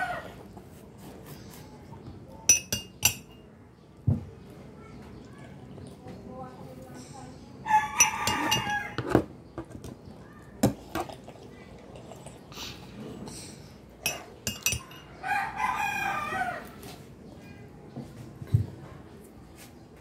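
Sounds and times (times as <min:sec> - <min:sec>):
spoon clinking against mug: 0:02.5 - 0:03.4, 0:08.0 - 0:09.1, 0:14.0 - 0:15.1
rooster crowing: 0:07.7 - 0:09.1, 0:15.2 - 0:16.8.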